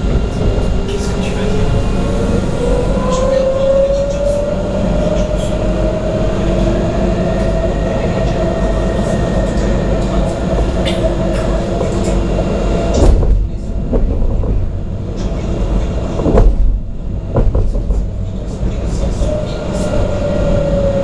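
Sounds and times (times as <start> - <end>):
tram wheels rumbling on rail: 0.0 - 21.0
tram whine: 0.0 - 21.0
sharp knocks: 16.2 - 18.1.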